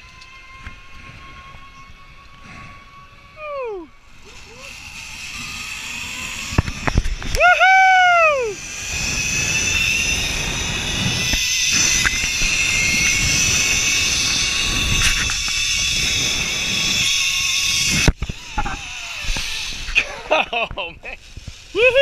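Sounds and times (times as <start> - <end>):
zip line pulleys whining: 0.0 - 22.0
person whooping yell: 3.4 - 3.9, 7.4 - 8.6, 21.8 - 22.0
wind buffeting microphone: 4.8 - 22.0.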